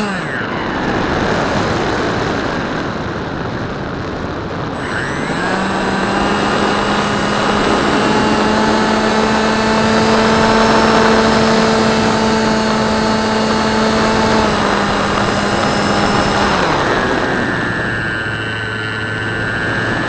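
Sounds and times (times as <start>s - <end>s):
rc plane motor drone: 0.0s - 20.0s
wind rushing over microphone: 0.0s - 20.0s.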